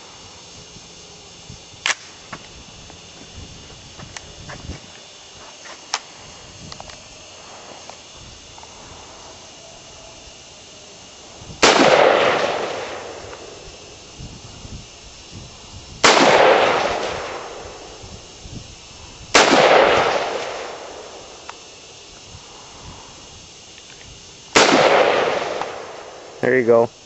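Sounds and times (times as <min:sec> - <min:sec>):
gunshot echo: 0:11.6 - 0:13.2, 0:16.0 - 0:17.6, 0:19.4 - 0:20.8, 0:24.6 - 0:26.0
rifle shots: 0:11.6 - 0:13.5, 0:16.0 - 0:17.6, 0:19.3 - 0:21.1, 0:24.6 - 0:26.3.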